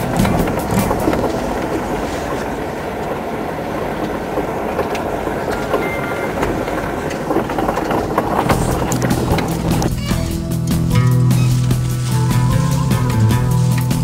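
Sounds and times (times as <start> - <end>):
light rattles: 0.0 - 3.3
vehicle driving on dirt road: 0.0 - 14.0.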